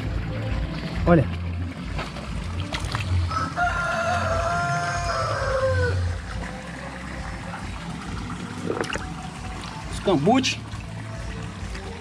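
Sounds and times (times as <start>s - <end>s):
rooster crowing: 3.3s - 6.1s.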